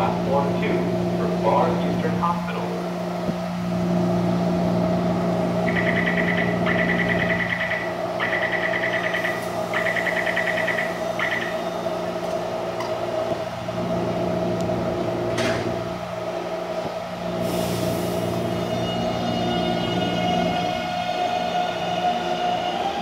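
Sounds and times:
train humming: 0.0 - 23.0
door warning beeping: 5.7 - 11.7
air hiss: 17.4 - 18.5.

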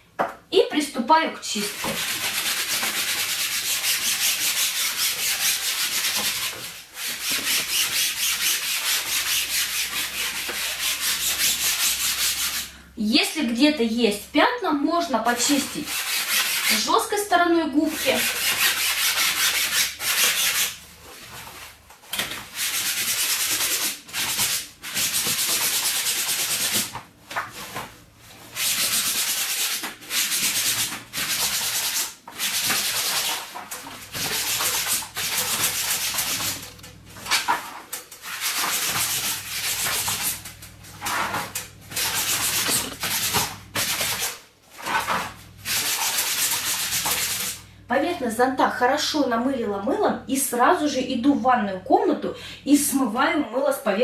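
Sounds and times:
sponge scrubbing umbrella canopy: 1.6 - 12.6, 22.5 - 37.5, 38.2 - 47.6.

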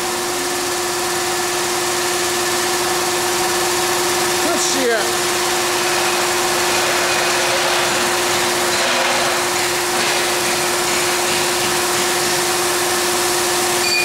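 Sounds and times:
machine humming: 0.0 - 14.0.

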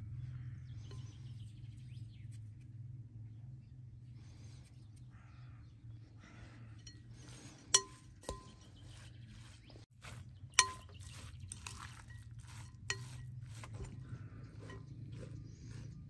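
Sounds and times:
birds chirping: 0.0 - 16.0
steady low hum: 0.0 - 16.0
spoon clinking glass bowl: 10.5 - 14.0.

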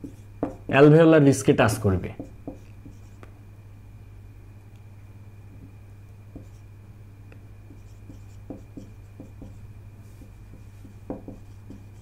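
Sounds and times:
low electrical hum: 0.0 - 12.0
pen scratching on paper: 7.7 - 12.0
pen tapping on writing surface: 8.1 - 9.6, 10.2 - 11.8.

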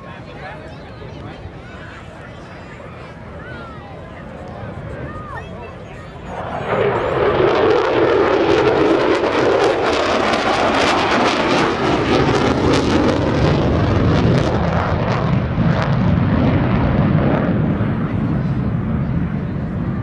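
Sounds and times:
jet engine afterburner roar: 0.0 - 20.0.

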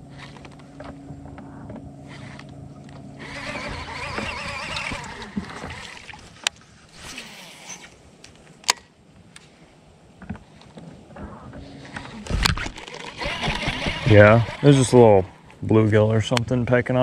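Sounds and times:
fishing reel spool whirring: 0.0 - 0.8, 2.0 - 6.1, 12.3 - 15.4.

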